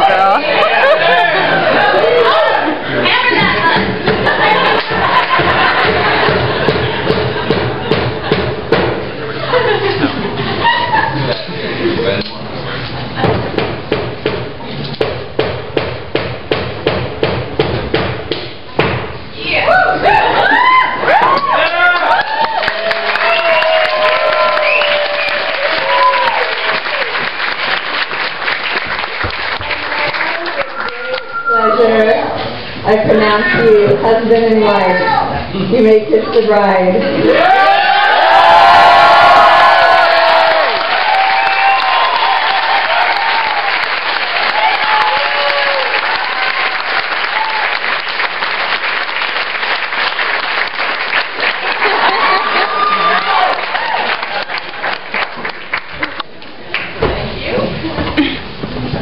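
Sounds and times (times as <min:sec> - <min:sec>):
crowd whooping and shouting: 0:00.0 - 0:06.6, 0:19.5 - 0:27.3, 0:30.4 - 0:32.0, 0:37.1 - 0:47.9, 0:51.8 - 0:55.0
crowd applauding: 0:00.0 - 0:08.4, 0:20.4 - 0:31.6, 0:37.3 - 0:57.0.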